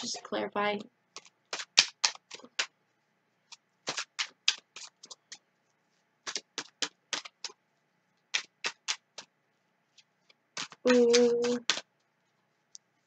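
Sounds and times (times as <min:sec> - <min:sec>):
cards shuffling clicks: 0:01.2 - 0:02.7, 0:03.5 - 0:05.4, 0:06.2 - 0:07.6, 0:08.3 - 0:09.3, 0:10.2 - 0:11.9.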